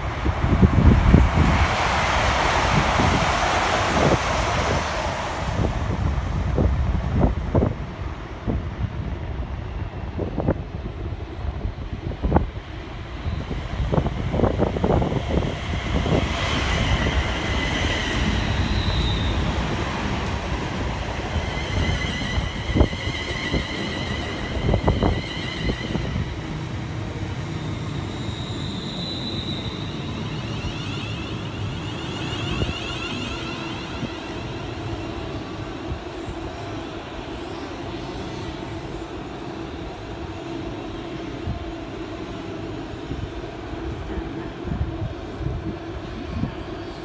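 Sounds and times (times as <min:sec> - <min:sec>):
train wheels rumbling: 0:00.0 - 0:40.6
high whining tones: 0:21.3 - 0:36.4.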